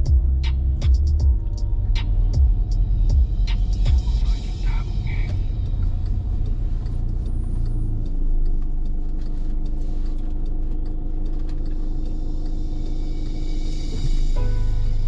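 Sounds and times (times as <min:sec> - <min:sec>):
airliner rumble: 0:00.0 - 0:10.5
steady hum: 0:00.0 - 0:15.0.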